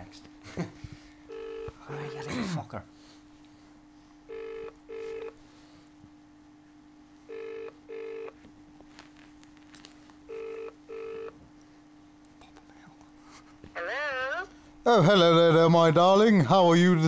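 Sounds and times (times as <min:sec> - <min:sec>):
telephone ringback tone: 0:01.3 - 0:02.2, 0:04.3 - 0:05.4, 0:07.3 - 0:08.4, 0:10.3 - 0:11.4.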